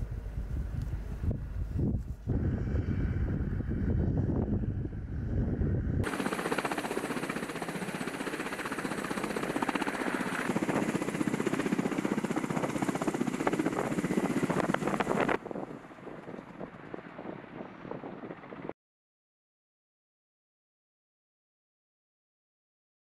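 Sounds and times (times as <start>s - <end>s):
helicopter rotors chopping: 3.2s - 18.7s.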